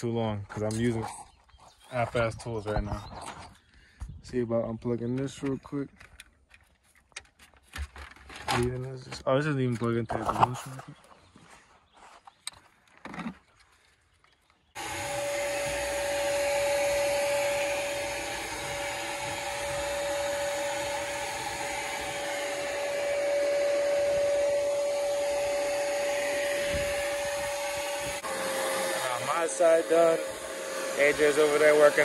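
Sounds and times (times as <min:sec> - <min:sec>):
shop vac whining: 0:14.8 - 0:32.0.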